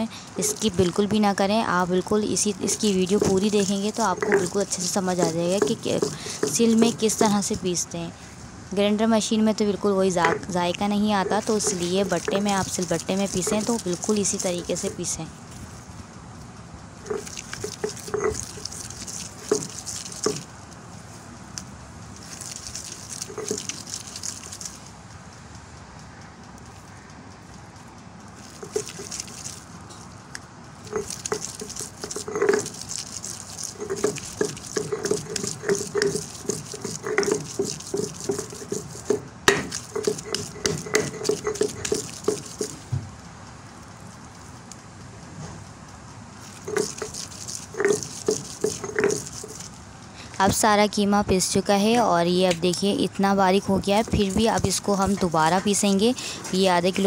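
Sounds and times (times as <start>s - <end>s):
stone roller scraping wet meat: 0.3s - 7.8s, 10.1s - 15.8s, 17.0s - 20.6s, 22.2s - 24.8s, 28.3s - 30.0s, 30.8s - 43.0s, 46.4s - 50.8s, 51.9s - 57.0s
stone knocks: 33.8s - 42.8s.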